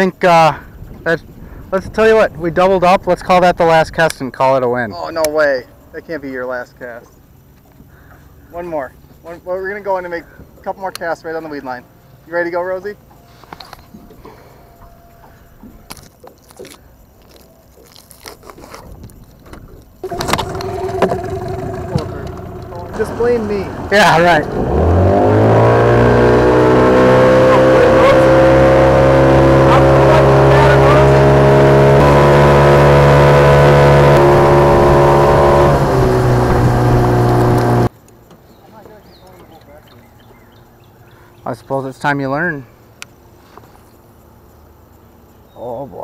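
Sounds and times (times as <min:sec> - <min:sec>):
boat motor humming: 0:11.8 - 0:16.8, 0:20.0 - 0:37.9
plastic packet crinkling: 0:16.4 - 0:19.4
water rushing past hull: 0:20.0 - 0:37.9.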